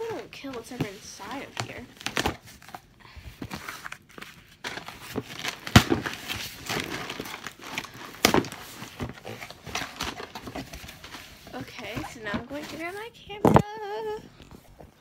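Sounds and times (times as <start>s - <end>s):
cardboard and tape tearing: 3.5s - 13.7s.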